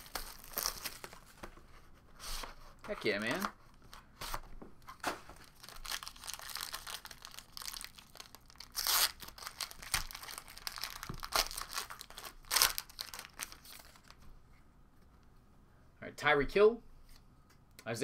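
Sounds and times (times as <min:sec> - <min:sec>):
foil wrapper crinkling: 0:00.0 - 0:01.2, 0:05.4 - 0:14.2.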